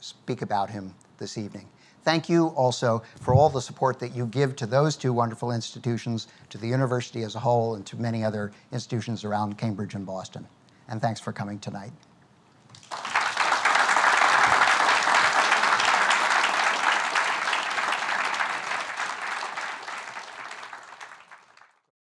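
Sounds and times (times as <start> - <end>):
audience applauding: 12.7 - 21.9.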